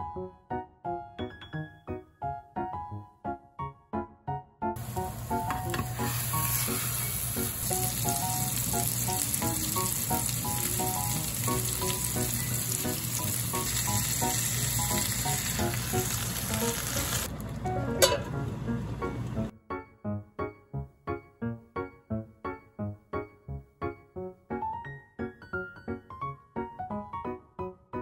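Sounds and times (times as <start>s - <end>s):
patties sizzling in frying pan: 4.8s - 17.4s.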